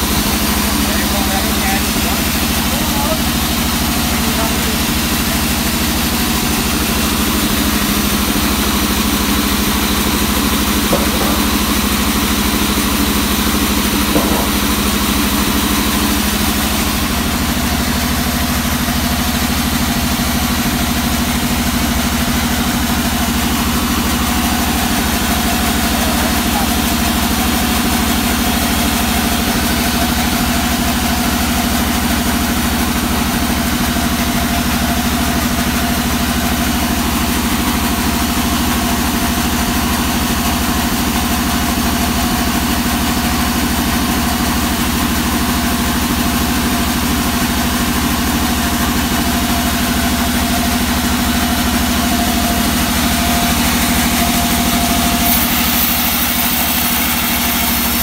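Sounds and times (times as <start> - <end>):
band saw humming: 0.0 - 38.6, 48.0 - 58.0
saw blade hiss: 52.9 - 58.0.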